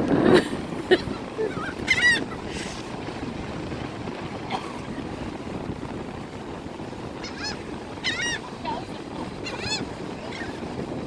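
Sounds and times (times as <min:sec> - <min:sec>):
surf: 0:00.0 - 0:11.0
wind: 0:00.0 - 0:11.0
seagulls calling: 0:01.4 - 0:02.4, 0:07.2 - 0:08.8, 0:09.4 - 0:10.6.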